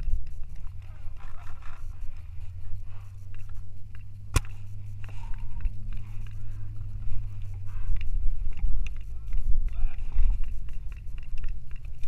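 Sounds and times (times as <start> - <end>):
wind rumble on microphone: 0.0 - 12.0
camera handling noise: 3.4 - 5.1
faint paintball pops: 4.3 - 4.6
paintball gun crack: 4.3 - 4.6.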